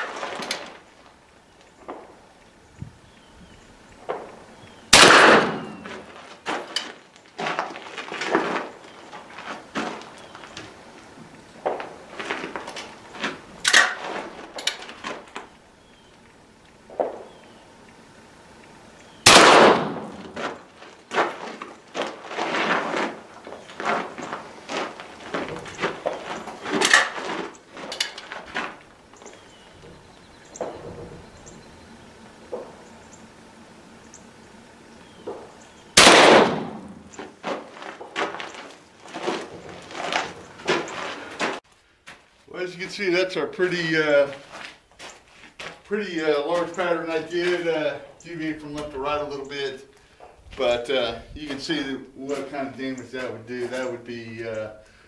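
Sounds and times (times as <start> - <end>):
shotgun shot with echo: 4.9 - 5.9, 19.2 - 20.3, 36.0 - 37.1.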